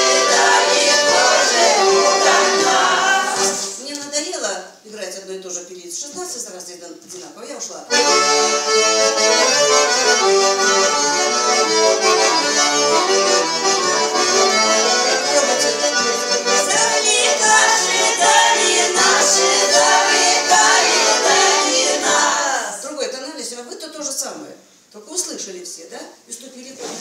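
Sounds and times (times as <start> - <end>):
button accordion playing lively tune: 0.0 - 3.7, 7.9 - 22.6.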